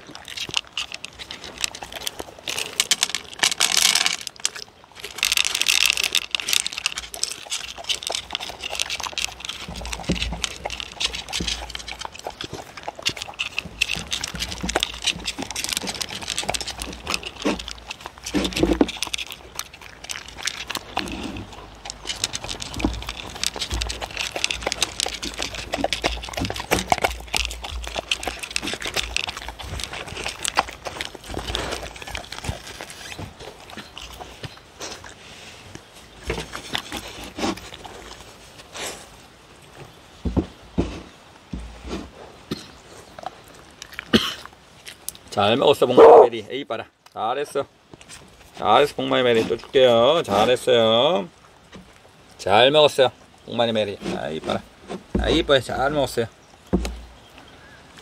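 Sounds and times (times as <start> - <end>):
dogs licking and chewing food: 0.0 - 58.0
dry pellets rattling into bowl: 0.4 - 12.3.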